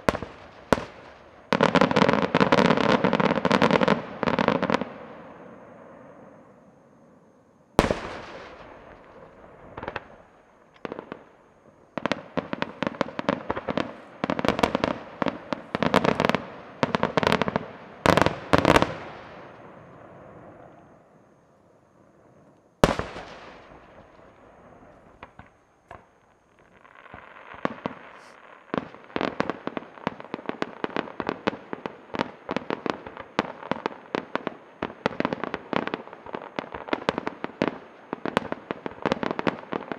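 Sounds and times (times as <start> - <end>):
fireworks bangs: 0.0 - 6.8, 7.8 - 21.3, 22.0 - 39.9
rapid firework pops: 7.8 - 11.3, 11.9 - 19.6, 22.8 - 39.9.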